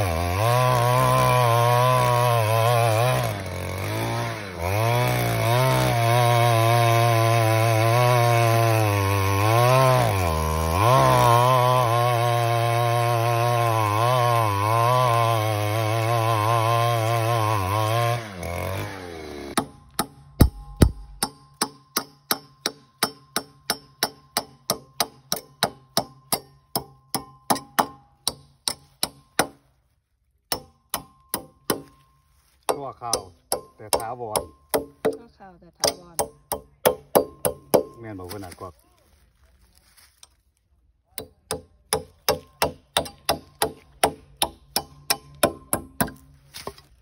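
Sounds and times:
hammer striking metal: 0:19.6 - 0:29.6, 0:41.2 - 0:46.2.

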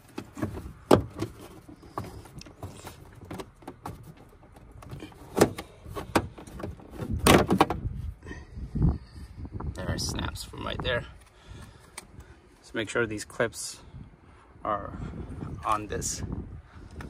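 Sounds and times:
plastic rubbing and creaking: 0:00.0 - 0:08.0.

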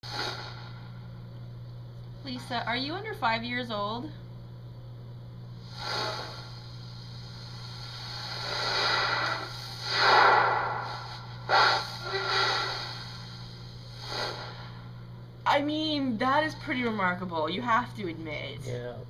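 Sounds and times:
soft breathy hissing: 0:00.0 - 0:00.8, 0:05.5 - 0:14.9
low electrical hum: 0:00.0 - 0:19.0.

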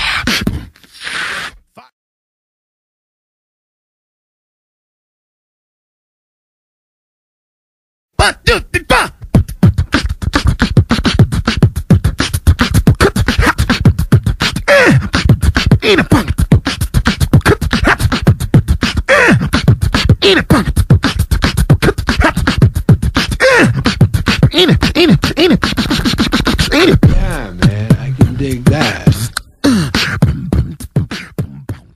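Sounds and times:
beatbox vocal percussion: 0:00.0 - 0:01.8, 0:08.2 - 0:31.9.

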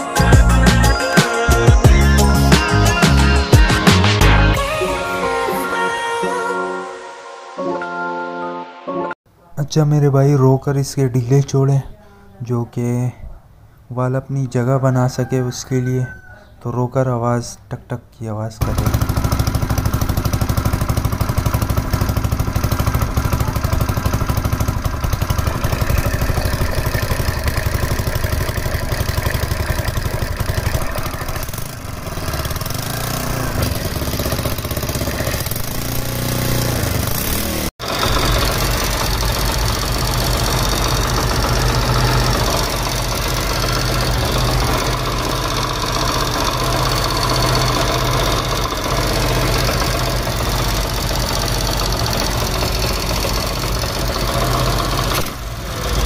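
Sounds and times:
motorcycle engine idling: 0:18.6 - 0:56.0.

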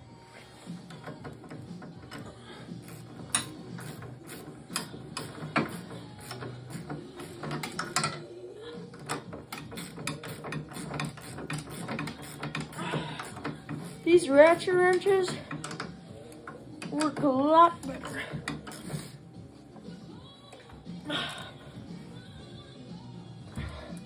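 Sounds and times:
ratcheting wrench clicking: 0:00.7 - 0:08.2, 0:09.0 - 0:19.2.

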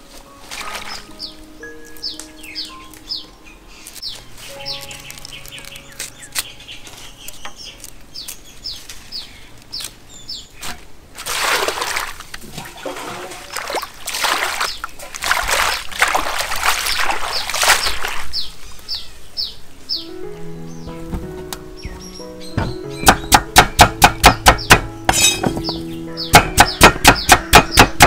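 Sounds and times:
water splashing and sloshing: 0:00.0 - 0:01.6, 0:10.6 - 0:18.8
small birds chirping: 0:00.9 - 0:10.7, 0:14.5 - 0:15.1, 0:16.8 - 0:28.0.

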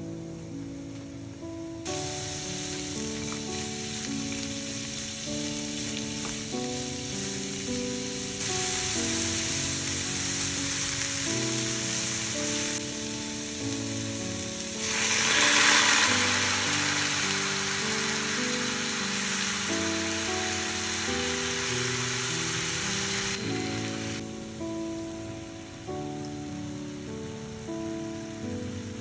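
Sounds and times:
vegetables sizzling in a frying pan: 0:01.4 - 0:29.0
liquid poured into hot pan: 0:14.4 - 0:24.2.

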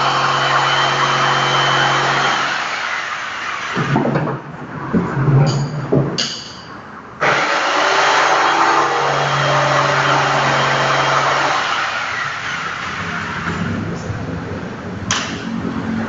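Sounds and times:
jigsaw cutting wood: 0:00.0 - 0:03.9, 0:07.2 - 0:12.9.

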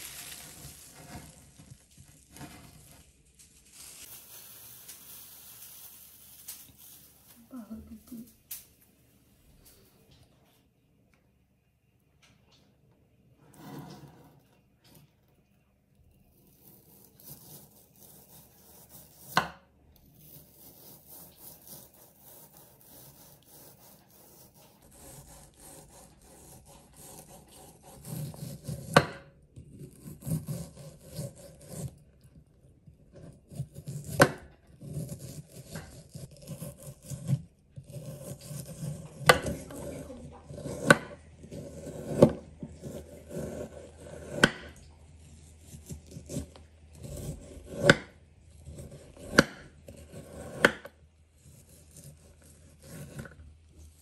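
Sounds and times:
knife slicing meat: 0:20.2 - 0:29.2, 0:29.8 - 0:32.0, 0:33.3 - 0:44.7, 0:45.5 - 0:53.3.

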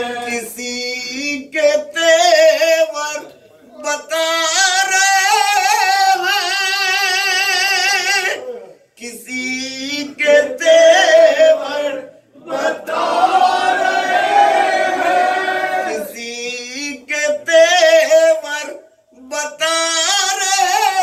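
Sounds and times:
voices chanting along: 0:00.0 - 0:01.3, 0:08.2 - 0:17.5
man chanting a lament: 0:00.0 - 0:12.8, 0:15.9 - 0:21.0.

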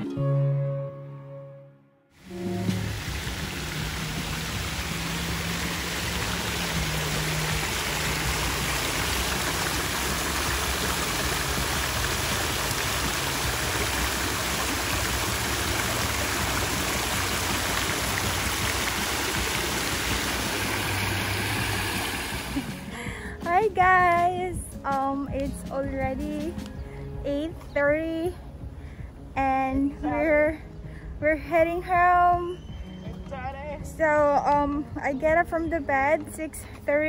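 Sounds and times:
fountain splashing into basin: 0:02.2 - 0:22.9.

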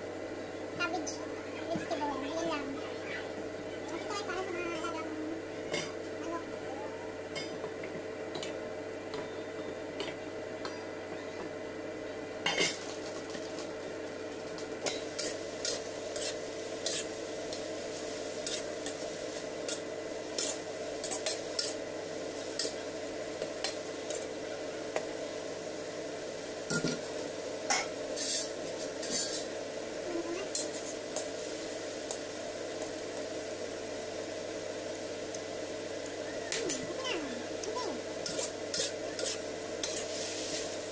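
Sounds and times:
steady hum: 0:00.0 - 0:40.9
food sizzling: 0:12.7 - 0:40.9
spatula scraping against a wok: 0:14.9 - 0:17.2, 0:17.9 - 0:21.8, 0:27.8 - 0:29.5, 0:38.2 - 0:40.8.

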